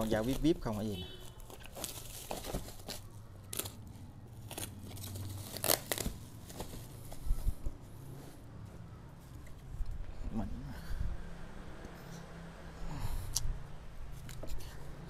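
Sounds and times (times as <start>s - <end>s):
bubble wrap crinkling: 0.0s - 7.2s.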